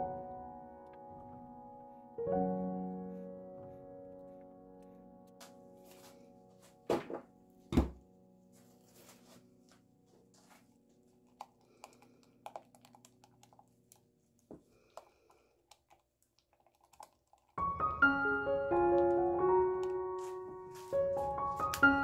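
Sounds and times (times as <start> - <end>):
piano music: 0.0 - 11.8, 17.6 - 22.0
spatula clicking and scraping in jug: 11.3 - 14.0, 14.8 - 17.7.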